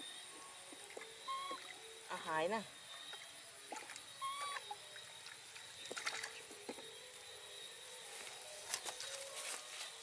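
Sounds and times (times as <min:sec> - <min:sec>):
faint rustling in grass: 0:07.9 - 0:10.0.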